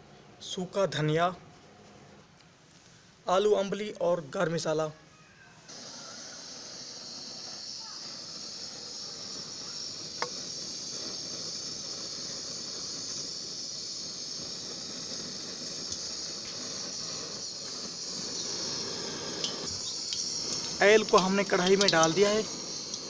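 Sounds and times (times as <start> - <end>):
gas burner hissing: 5.6 - 23.0.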